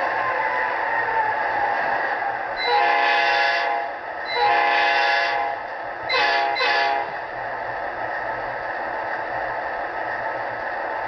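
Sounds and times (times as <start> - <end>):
model locomotive horn blasts: 2.6 - 7.2.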